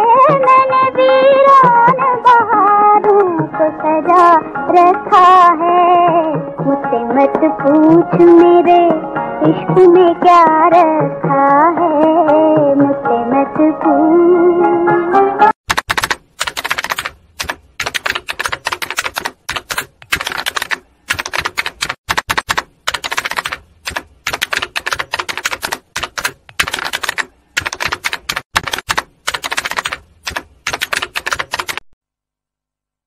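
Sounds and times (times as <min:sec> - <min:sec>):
typewriter key clacks: 0:15.7 - 0:31.8.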